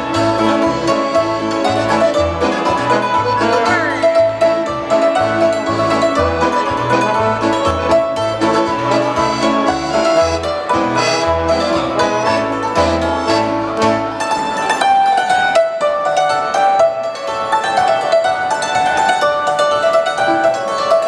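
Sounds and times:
oom-pah bass line: 0:00.0 - 0:14.3
trombone: 0:00.0 - 0:14.4
accordion: 0:00.0 - 0:21.0
hammered dulcimer: 0:00.0 - 0:21.0
keyboard: 0:00.0 - 0:21.0.

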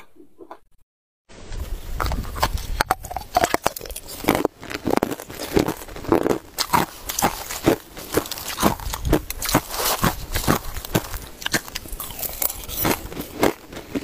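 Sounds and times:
person chewing crushed ice: 0:02.0 - 0:14.0.

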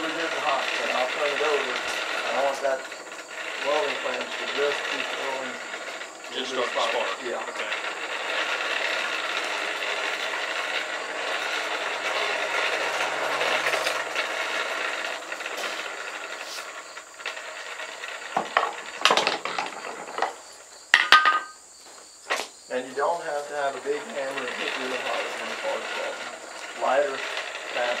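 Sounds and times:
forge blower rushing air: 0:00.0 - 0:20.6, 0:22.7 - 0:28.0
sharp metal knocks: 0:20.9 - 0:21.6.

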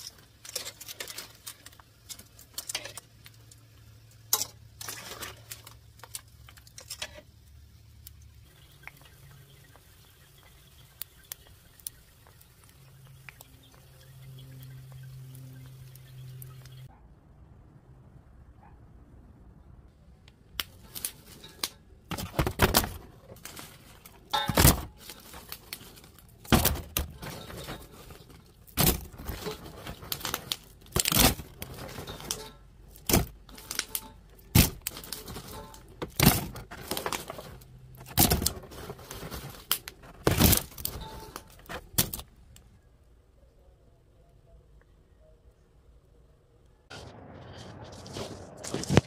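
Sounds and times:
bags rustling and crinkling: 0:20.7 - 0:42.3, 0:47.6 - 0:49.0.

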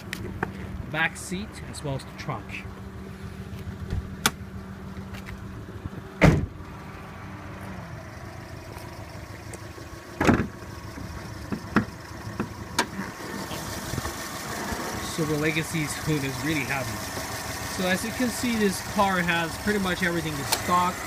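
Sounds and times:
car engine idling: 0:00.0 - 0:21.0
car door shutting: 0:06.2 - 0:06.6, 0:10.2 - 0:10.6.

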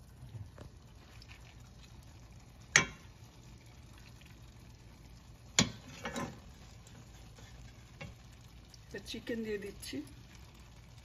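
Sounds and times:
spoon knocking pot: 0:02.7 - 0:03.1, 0:05.5 - 0:06.4.

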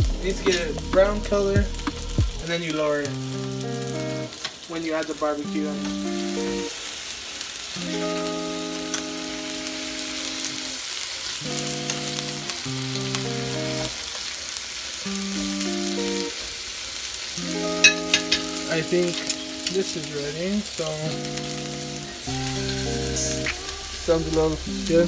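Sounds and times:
background music of held chords: 0:00.0 - 0:02.4, 0:17.4 - 0:20.2, 0:21.0 - 0:25.0
meat sizzling in oil: 0:00.0 - 0:25.0.

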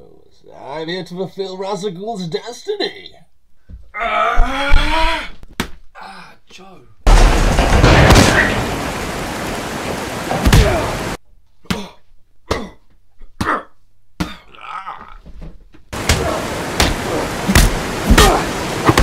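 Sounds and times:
grunt: 0:04.0 - 0:05.2, 0:13.4 - 0:15.2
background rush: 0:07.1 - 0:11.2, 0:16.0 - 0:19.0.

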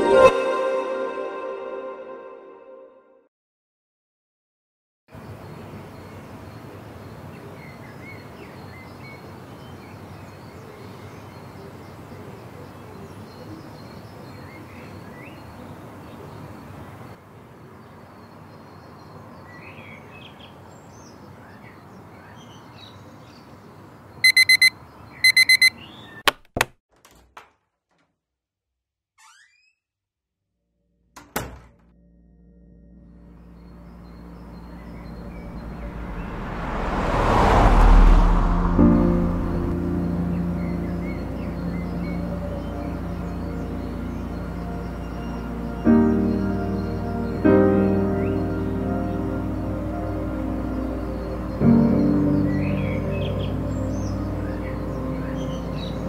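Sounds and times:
alarm clock beeping: 0:24.2 - 0:25.7.

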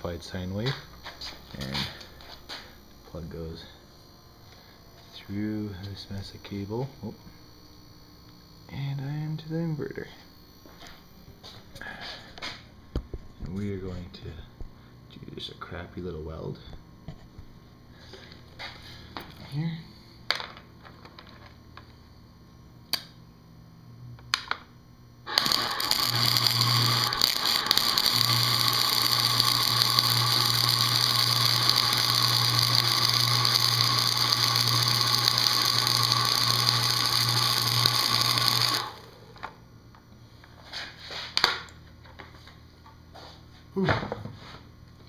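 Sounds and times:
low buzz: 0:00.0 - 0:40.6
welding arc crackling: 0:25.2 - 0:39.6.

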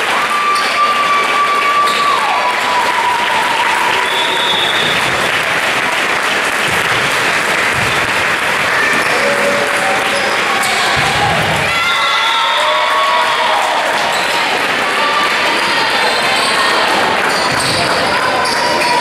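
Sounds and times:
crowd clapping: 0:00.0 - 0:19.0
people shouting: 0:08.7 - 0:17.1.

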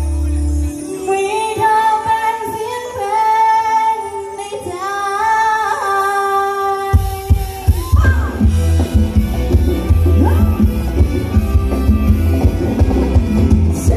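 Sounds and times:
dance band music: 0:07.0 - 0:13.9.

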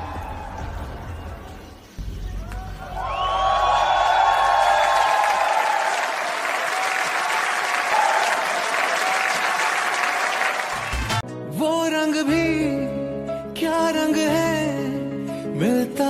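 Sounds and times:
audience applauding: 0:02.5 - 0:11.2.

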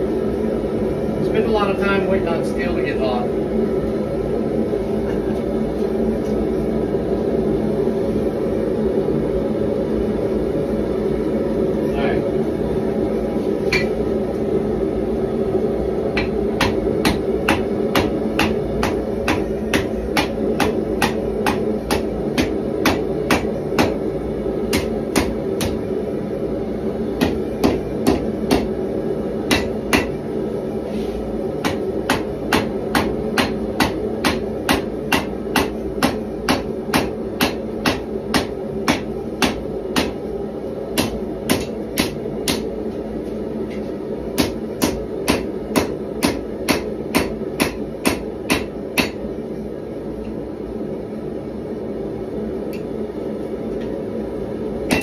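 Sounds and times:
hammer striking steel on anvil: 0:13.7 - 0:14.0, 0:16.2 - 0:24.0, 0:24.7 - 0:25.8, 0:29.5 - 0:30.2, 0:31.6 - 0:40.2, 0:41.0 - 0:42.7, 0:44.4 - 0:49.2.

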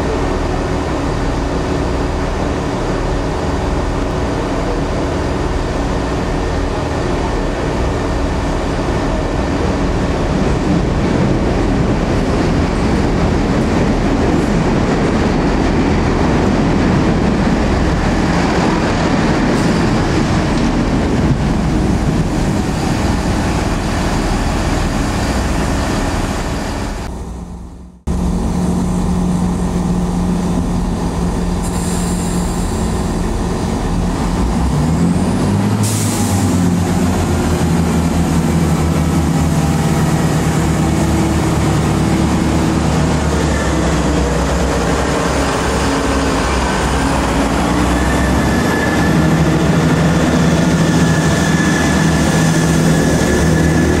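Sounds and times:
train diesel engines running: 0:00.0 - 0:54.0
air brake hiss: 0:31.6 - 0:33.2, 0:35.8 - 0:36.5.

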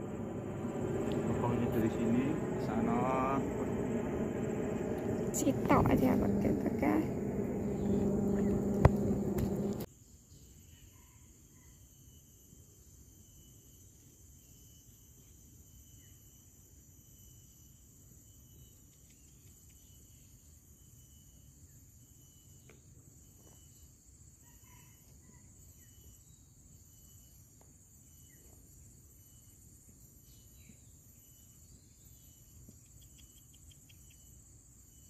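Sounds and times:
insects chirring: 0:00.0 - 0:09.9.

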